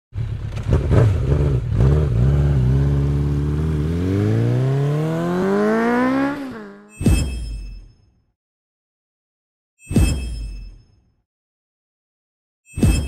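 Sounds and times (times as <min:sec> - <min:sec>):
vehicle engine revving: 0:00.2 - 0:06.9.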